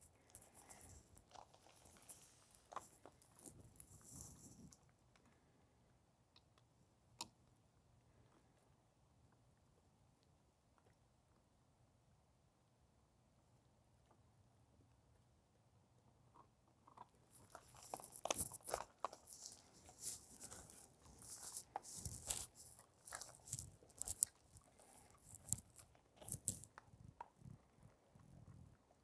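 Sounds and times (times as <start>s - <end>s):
dogs chewing on branches: 17.5s - 27.3s.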